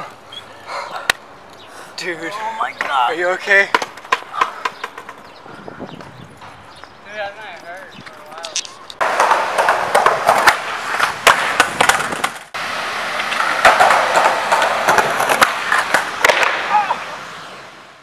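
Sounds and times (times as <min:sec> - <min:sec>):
skateboard wheels rolling on concrete: 0:00.0 - 0:18.0
skateboard clacking on ground: 0:02.6 - 0:05.4, 0:07.5 - 0:12.5, 0:13.2 - 0:16.8.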